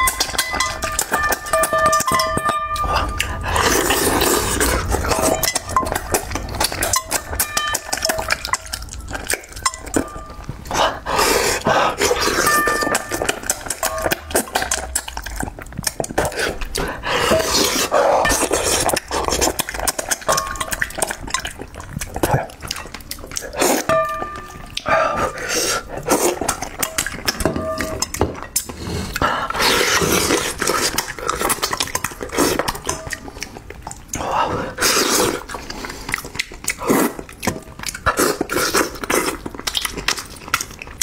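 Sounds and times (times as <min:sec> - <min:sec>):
chopsticks clinking on metal bowl: 0:00.0 - 0:10.6, 0:11.9 - 0:16.2, 0:17.2 - 0:28.8, 0:29.6 - 0:33.6
chewing and lip smacks: 0:00.0 - 0:41.0.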